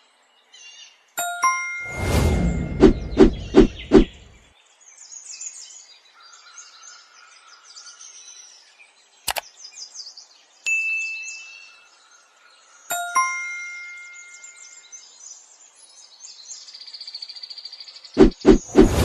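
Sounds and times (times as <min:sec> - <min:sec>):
ringing chime strike: 0:01.2 - 0:02.8, 0:12.9 - 0:14.8
high busy chirping: 0:02.3 - 0:04.3, 0:18.2 - 0:19.0.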